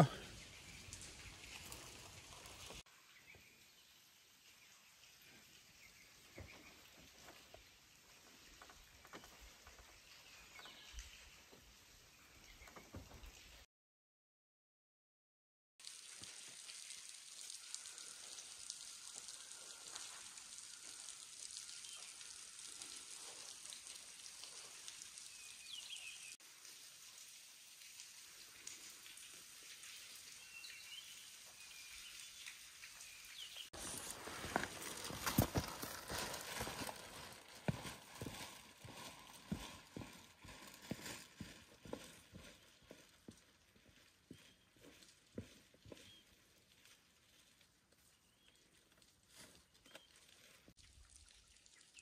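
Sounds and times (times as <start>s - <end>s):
footsteps on rocky trail: 33.8s - 47.5s.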